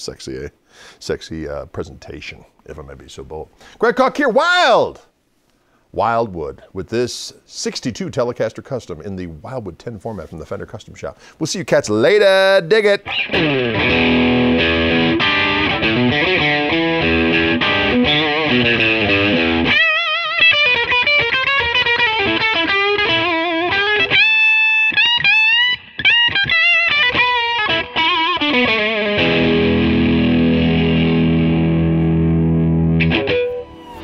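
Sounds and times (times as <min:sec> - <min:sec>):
electric guitar lead line: 0:13.0 - 0:34.0
electric guitar chord ringing: 0:13.1 - 0:34.0.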